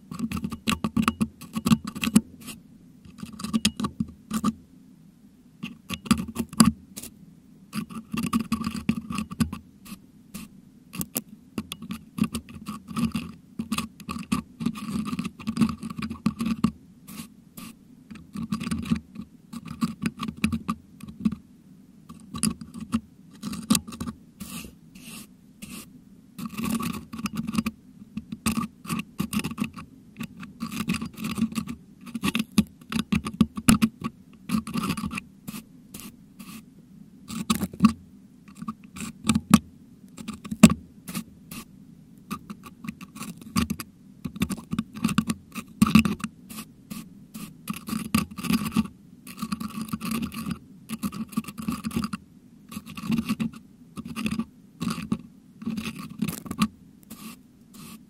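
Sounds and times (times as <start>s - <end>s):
metal hook scraping microphone grille: 22.1s - 36.7s, 42.3s - 58.0s.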